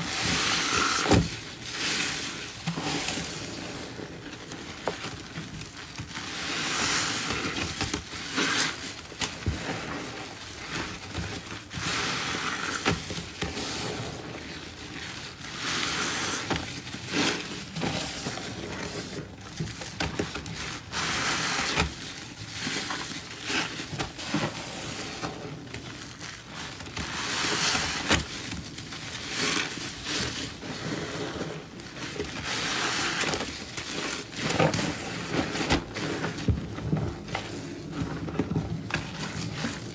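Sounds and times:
wet sponge squelching foam: 0.0 - 19.4.

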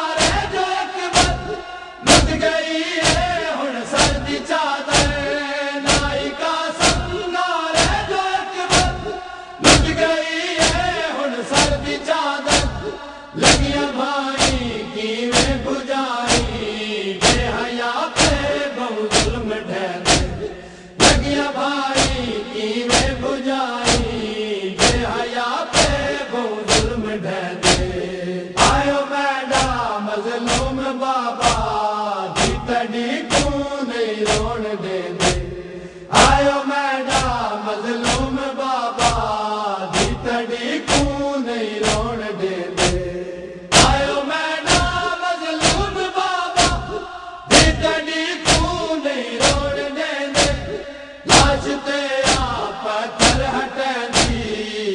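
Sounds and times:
men chanting in unison: 0.0 - 54.9
chest-beating slaps: 0.2 - 2.4, 3.0 - 4.3, 4.9 - 5.3, 5.9 - 10.0, 10.6 - 11.0, 11.6 - 13.8, 14.4 - 14.7, 15.3 - 15.7, 16.3 - 16.6, 17.2 - 17.6, 18.2 - 18.5, 19.1 - 19.4, 20.0 - 21.4, 22.0 - 22.3, 22.9 - 23.2, 23.8 - 24.2, 24.8 - 25.2, 25.8 - 26.1, 26.7 - 27.0, 27.6 - 28.0, 30.5 - 30.7, 31.4 - 31.7, 32.4 - 32.7, 33.3 - 33.6, 34.3 - 34.6, 35.2 - 35.5, 38.0 - 38.3, 39.0 - 39.2, 40.0 - 40.3, 40.9 - 41.2, 41.8 - 42.1, 42.8 - 43.1, 43.7 - 44.1, 44.7 - 46.0, 46.6 - 48.8, 49.4 - 54.5.

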